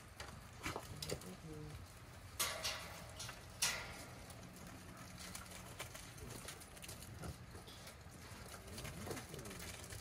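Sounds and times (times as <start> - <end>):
paws and feet on gravel: 4.0 - 10.0.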